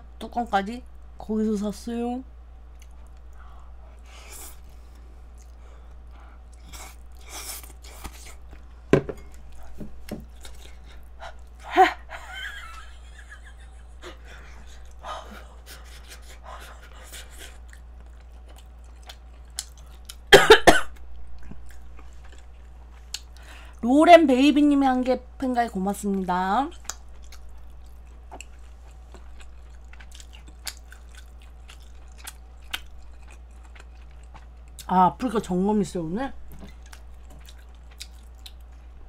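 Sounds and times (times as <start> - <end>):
woman coughing: 20.3 - 20.9.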